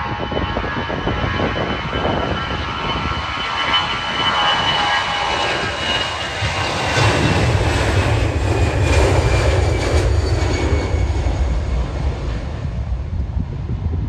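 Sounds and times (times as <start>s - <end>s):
thin high jet whine: 0.0s - 13.1s
jet engines deep rumble: 0.0s - 14.0s.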